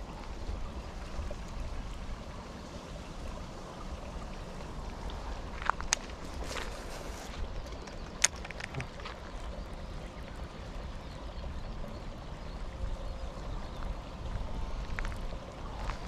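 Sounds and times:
wind buffeting microphone: 4.0s - 16.0s.

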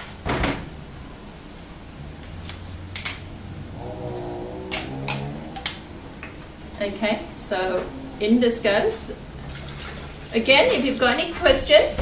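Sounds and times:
low pitched tone: 3.5s - 8.3s.

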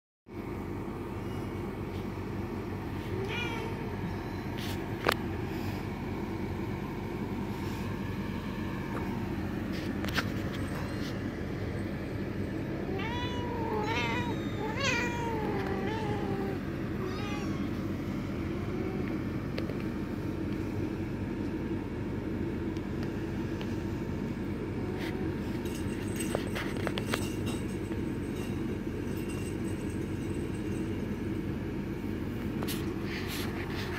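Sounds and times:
steady low rumble: 0.4s - 33.9s
kitten meowing: 3.2s - 3.9s, 12.9s - 17.7s.

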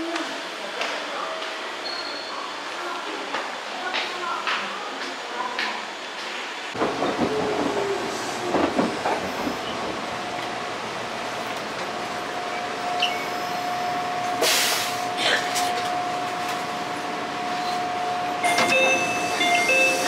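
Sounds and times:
train rumbling on rails: 5.2s - 20.0s
short sharp hiss: 14.4s - 15.0s.

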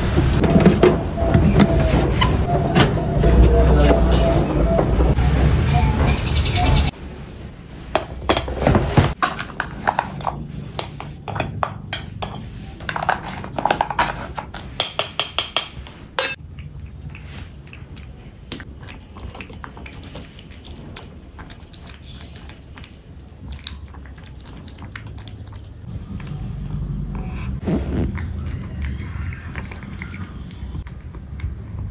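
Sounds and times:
spoon clinking in metal bowls: 14.8s - 16.4s.

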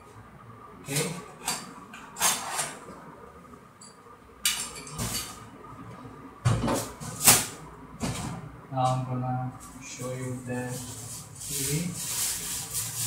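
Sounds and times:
cardboard and foam rubbing: 9.7s - 13.0s
sharp scraping noises: 9.8s - 13.0s.

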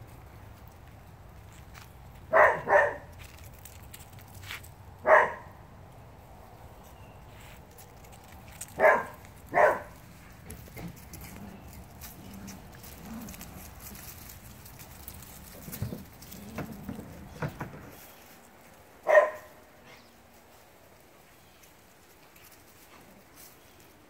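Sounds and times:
puppies scuffling: 0.0s - 4.9s, 6.2s - 19.5s, 20.2s - 24.0s
puppies growling: 10.4s - 17.8s
puppy yip: 19.1s - 19.5s.

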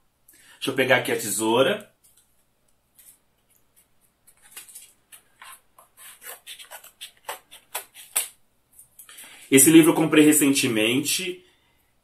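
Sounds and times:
package rustling: 2.0s - 8.4s
scissors cutting cardboard: 4.4s - 8.3s.

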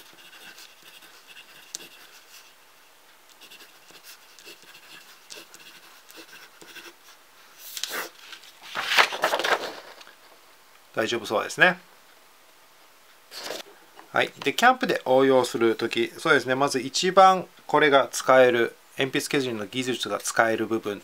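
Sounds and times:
pencil scratching on paper: 0.0s - 2.6s, 3.3s - 8.2s
pencil swishes on paper: 7.6s - 9.0s.

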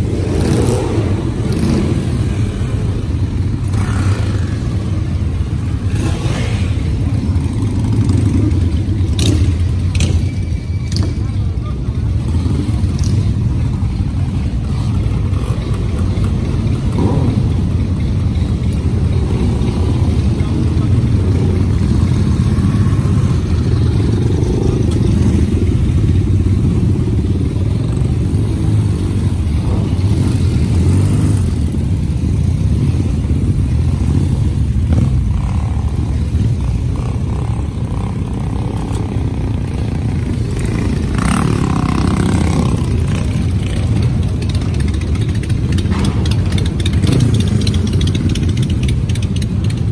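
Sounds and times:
motorcycle engines running: 0.0s - 49.9s.

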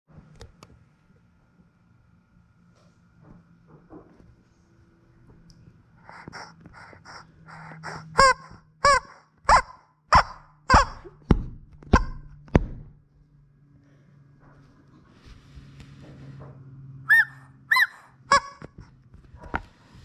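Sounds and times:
rubber chicken squawks: 7.1s - 11.2s, 11.9s - 12.3s, 17.1s - 18.8s.

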